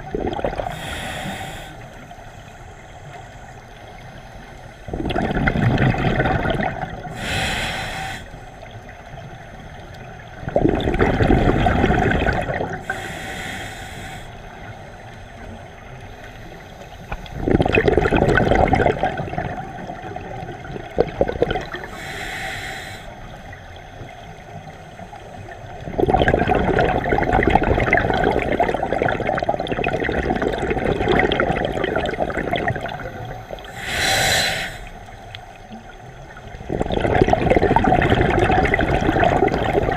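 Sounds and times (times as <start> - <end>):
bubbling exhale underwater: 0.0 - 1.7, 4.8 - 8.8, 10.3 - 13.6, 17.2 - 22.8, 25.8 - 35.0, 36.4 - 39.9
hissing inhale through regulator: 0.6 - 2.7, 7.1 - 8.7, 12.8 - 15.0, 21.7 - 23.6, 33.5 - 35.3.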